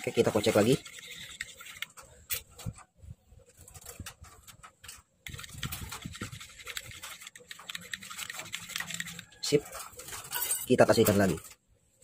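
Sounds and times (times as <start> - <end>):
metal spoon scraping wet mash: 0.0 - 2.7.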